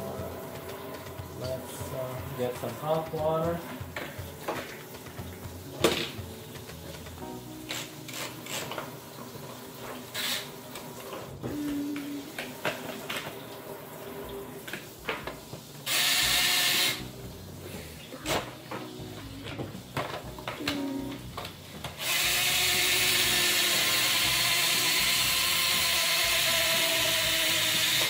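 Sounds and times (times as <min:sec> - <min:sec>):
running water hissing rush: 0:00.0 - 0:20.4, 0:21.5 - 0:28.0.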